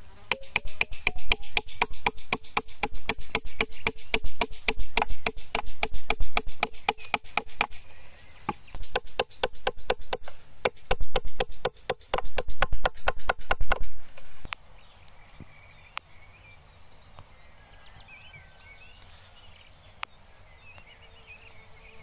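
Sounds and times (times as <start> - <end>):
hammer driving nails into wood: 0.3 - 7.8, 8.5 - 13.9.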